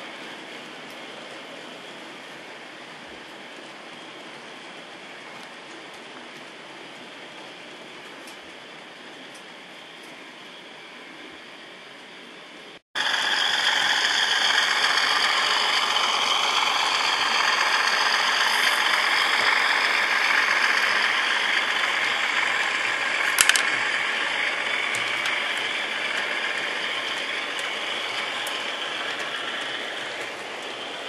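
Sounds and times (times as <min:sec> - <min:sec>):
model train motor whirring: 0:13.0 - 0:31.0
sharp click: 0:23.3 - 0:23.8.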